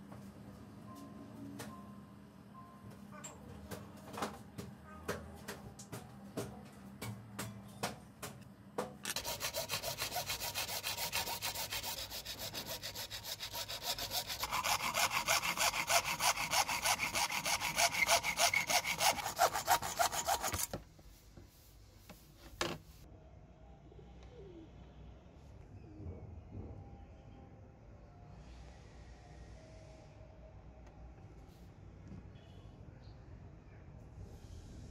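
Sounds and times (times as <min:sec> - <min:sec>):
hacksaw cutting: 0:09.0 - 0:20.8.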